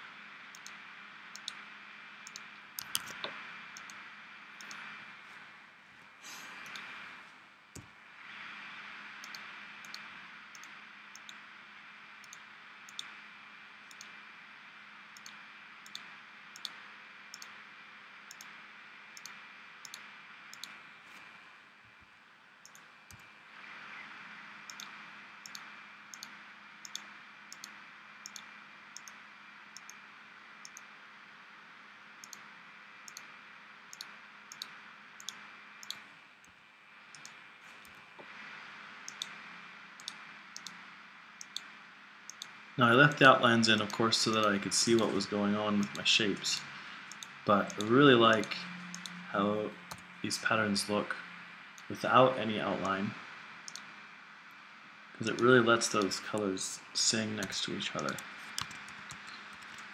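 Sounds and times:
low hiss: 0.0s - 59.9s
computer mouse clicks: 0.5s - 1.6s, 2.2s - 4.0s, 4.6s - 4.9s, 6.6s - 7.0s, 9.2s - 11.4s, 12.2s - 13.1s, 13.9s - 14.2s, 15.2s - 17.6s, 18.3s - 18.5s, 19.2s - 21.2s, 22.6s - 23.3s, 24.7s - 29.2s, 29.8s - 30.0s, 30.6s - 30.9s, 32.2s - 32.5s, 33.1s - 33.3s, 33.9s - 38.4s, 39.1s - 39.4s, 40.0s - 40.8s, 41.4s - 41.7s, 42.3s - 42.6s, 43.7s - 45.2s, 45.8s - 49.2s, 49.8s - 50.0s, 53.6s - 53.9s, 57.4s - 59.9s.

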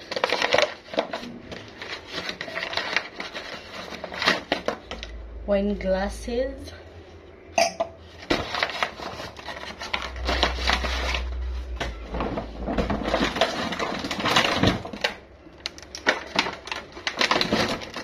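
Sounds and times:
plastic bags rustling and crinkling: 0.0s - 5.1s, 8.0s - 18.0s.

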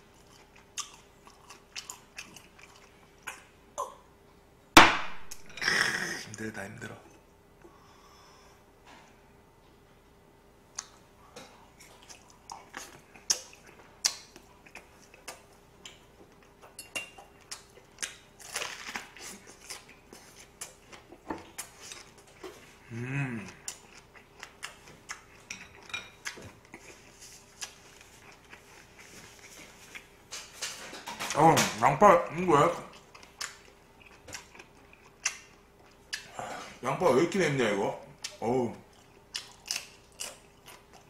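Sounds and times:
chewing food: 0.0s - 3.5s, 10.7s - 31.4s, 32.6s - 36.4s, 38.2s - 41.0s
person humming: 22.8s - 23.6s.

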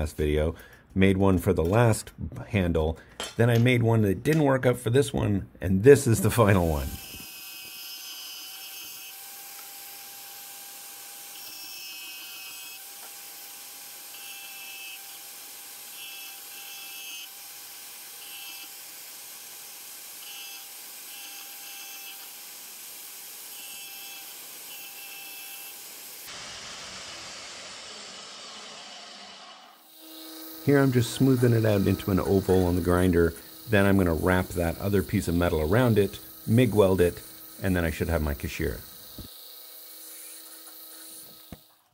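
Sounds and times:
band saw motor whine: 6.2s - 9.7s, 23.5s - 41.9s.

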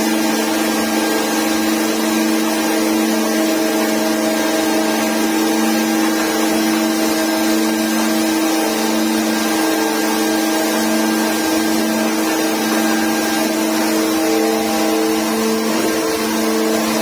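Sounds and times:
constant machine hum: 0.0s - 17.0s
hydraulic rock drill boring: 0.0s - 17.0s.

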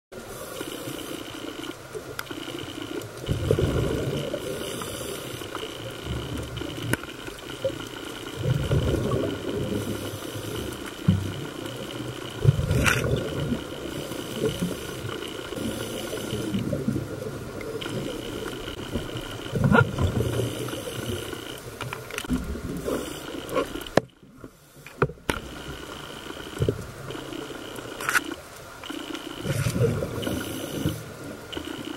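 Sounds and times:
underwater rumbling swash: 3.2s - 5.1s, 7.5s - 23.9s.

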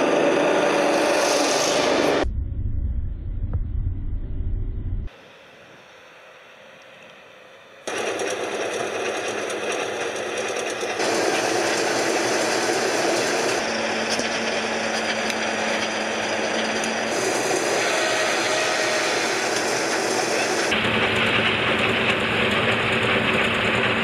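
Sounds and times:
low steady hum: 2.2s - 7.8s
heavy vehicle mechanical running: 6.0s - 24.0s.

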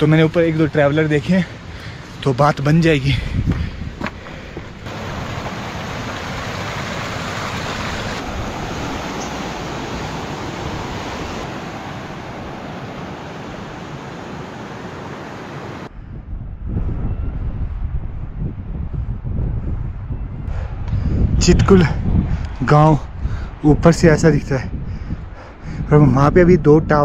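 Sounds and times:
mountain stream rushing: 4.8s - 15.9s.

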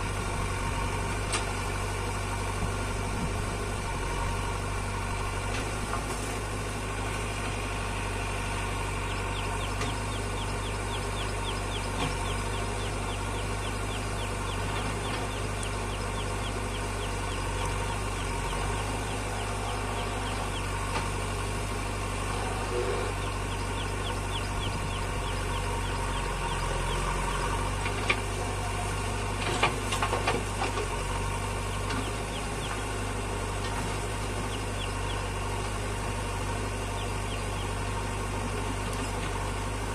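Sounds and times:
diesel engines running: 0.0s - 39.9s
backhoe digging soil: 26.3s - 34.4s.

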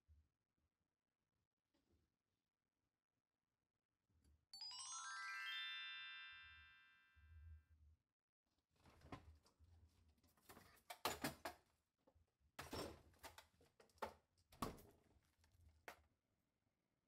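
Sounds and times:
refrigerator door opening and closing: 12.6s - 13.5s.

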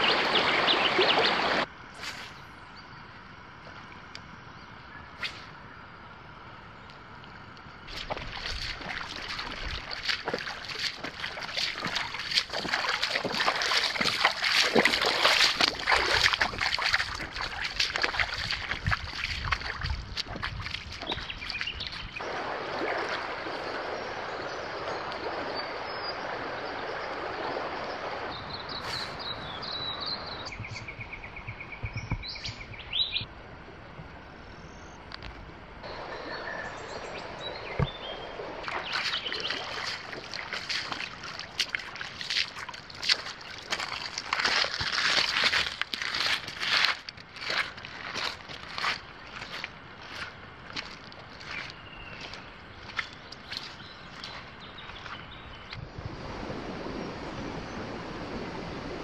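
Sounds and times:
water rushing over stones: 0.0s - 1.7s, 7.9s - 29.2s, 35.9s - 51.5s
footsteps splashing through river: 0.0s - 2.4s, 7.8s - 31.0s, 35.9s - 57.1s
birds calling: 0.0s - 3.1s, 7.9s - 22.3s, 28.3s - 33.3s, 35.9s - 41.7s, 51.3s - 55.8s.

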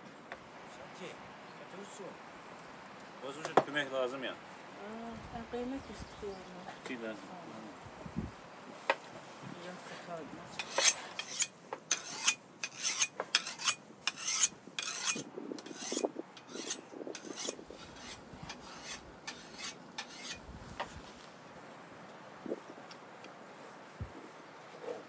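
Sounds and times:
knife rasping on a sharpener: 10.6s - 20.4s.

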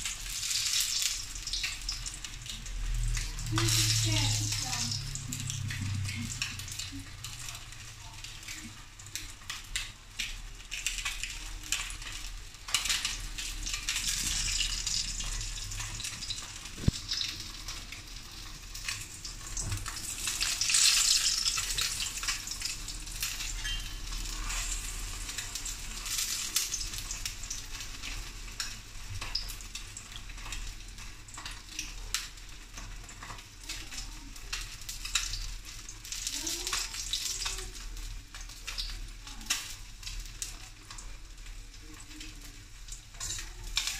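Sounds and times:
fish sizzling in hot oil: 0.0s - 43.9s
oil popping: 12.8s - 18.0s.

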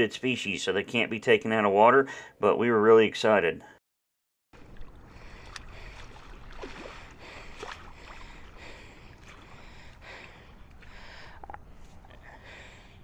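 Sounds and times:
shallow water splashing: 4.6s - 12.8s.

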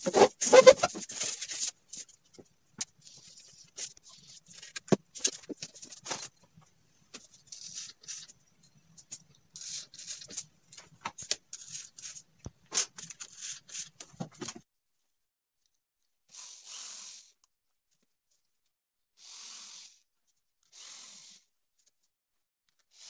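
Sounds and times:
rubbing and scraping of wood: 0.0s - 2.4s.

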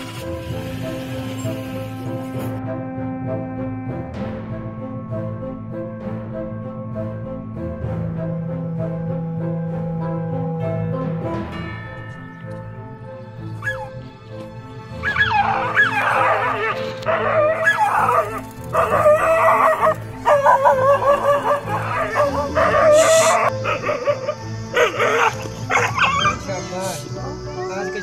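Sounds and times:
dog barking and yowling: 13.6s - 14.0s, 15.0s - 26.4s.

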